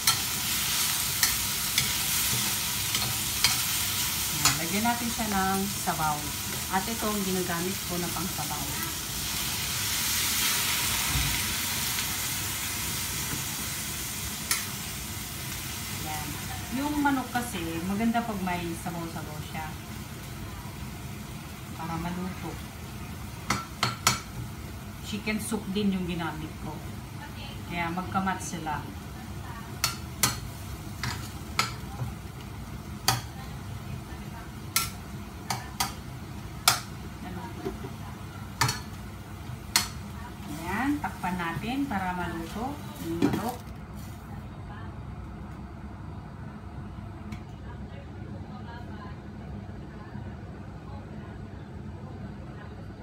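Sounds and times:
broth hissing in hot wok: 0.0s - 17.6s
steady sizzle: 0.0s - 47.3s.

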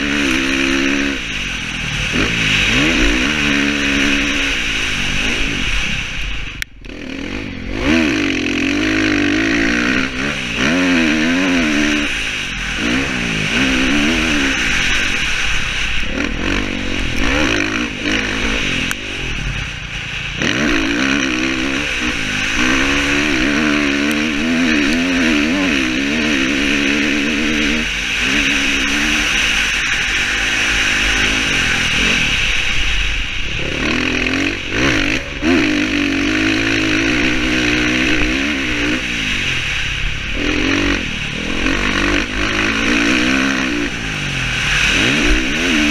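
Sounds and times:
dirt bike engine revving: 0.0s - 45.9s.

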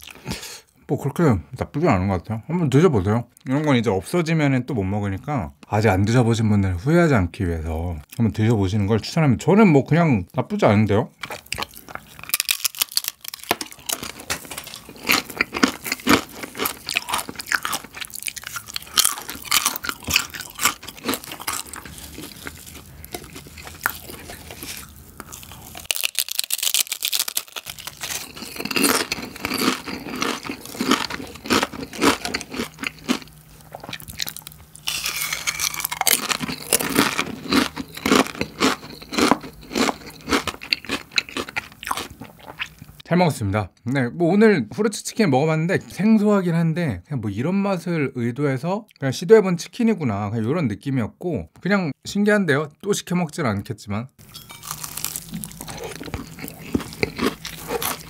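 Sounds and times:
chips being chewed crunching: 11.2s - 43.0s, 54.2s - 58.0s.

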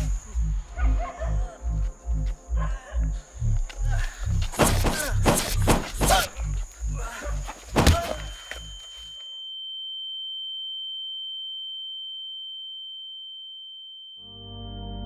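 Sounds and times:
high-pitched ringing tone: 8.0s - 15.0s.

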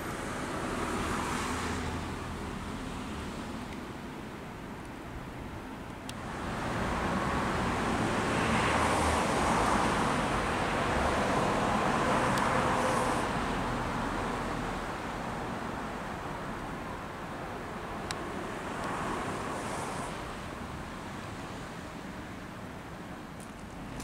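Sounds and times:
vehicle passing by: 6.2s - 14.7s.

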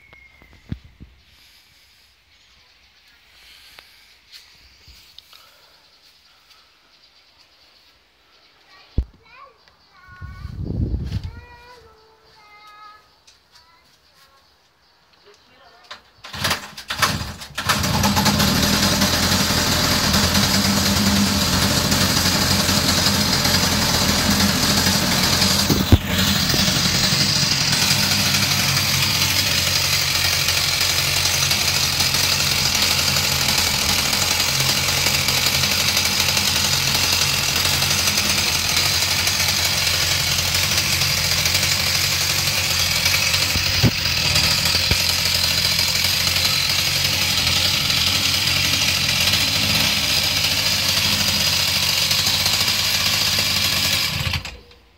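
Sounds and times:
chainsaw engine idling: 16.2s - 54.7s.

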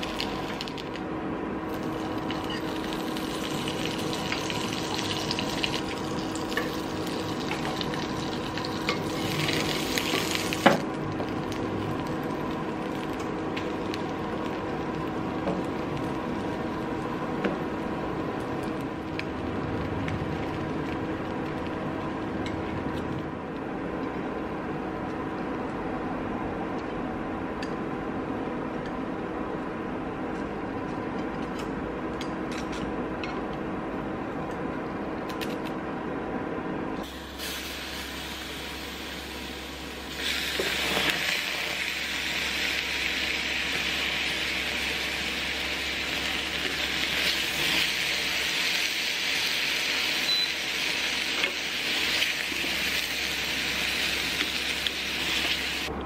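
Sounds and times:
beans sizzling loudly in pan: 0.0s - 1.0s, 1.7s - 18.2s, 37.0s - 55.9s
bread frying in pan: 0.0s - 23.1s, 37.1s - 55.9s
steady mechanical hum: 0.0s - 56.0s.

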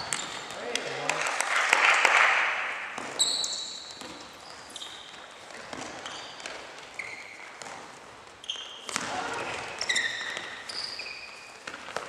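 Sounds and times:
shoes squeaking on gym floor: 0.0s - 0.7s, 2.9s - 12.0s
feet and ball thuds: 2.9s - 10.8s.

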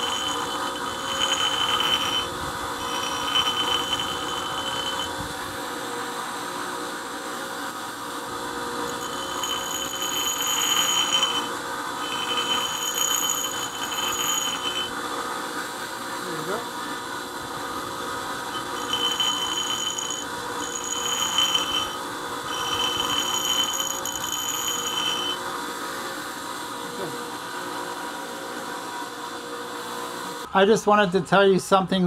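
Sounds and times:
high-pitched grinding screech: 0.0s - 5.3s, 8.8s - 15.0s, 18.2s - 25.4s
grinder motor hum: 0.0s - 6.3s, 8.2s - 27.4s.

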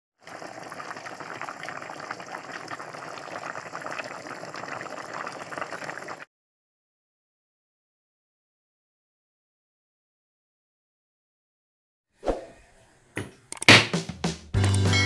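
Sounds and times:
broth boiling with popping bubbles: 0.2s - 6.3s.

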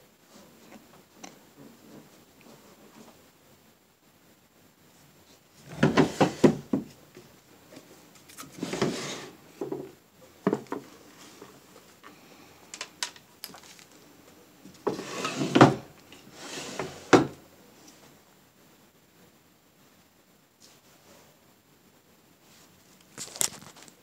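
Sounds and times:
objects knocking and rubbing: 5.6s - 7.0s.

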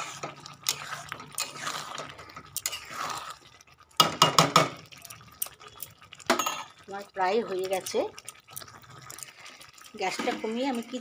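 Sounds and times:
spatula scraping metal pan: 0.0s - 3.4s
wet squelching of curry: 0.0s - 3.8s.

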